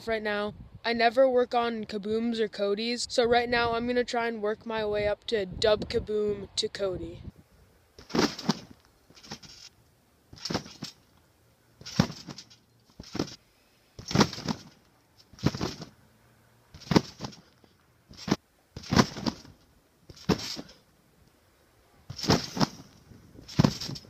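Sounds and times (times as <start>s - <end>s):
trampoline mat landings: 8.0s - 9.7s, 10.3s - 11.1s, 11.8s - 13.4s, 14.0s - 15.9s, 16.7s - 20.8s, 22.1s - 24.0s.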